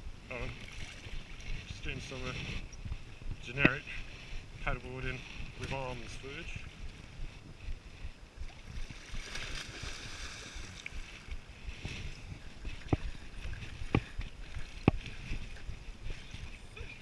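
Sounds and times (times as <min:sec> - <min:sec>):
wind rumble on microphone: 0:00.0 - 0:17.0
paddle strokes swishing water: 0:00.5 - 0:17.0.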